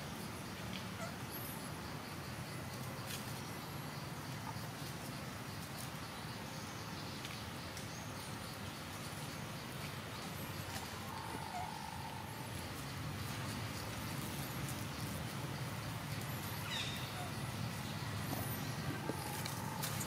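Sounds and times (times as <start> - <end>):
faint bird chirps: 10.2 - 12.6.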